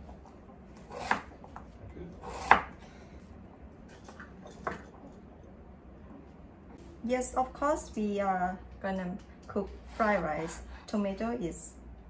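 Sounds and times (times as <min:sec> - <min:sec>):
knife chopping on wooden board: 0:00.9 - 0:01.6, 0:02.2 - 0:02.8.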